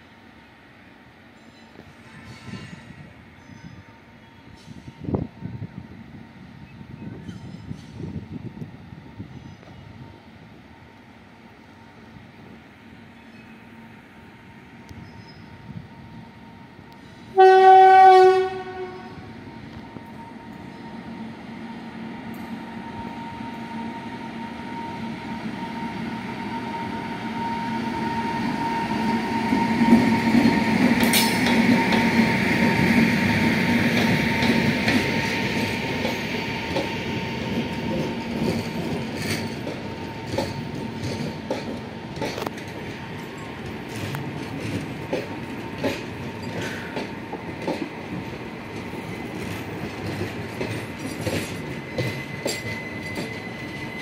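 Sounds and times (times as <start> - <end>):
passenger train rolling past: 0.0 - 54.0
train horn: 17.3 - 20.9
wheels clicking over rail joints: 37.9 - 53.5.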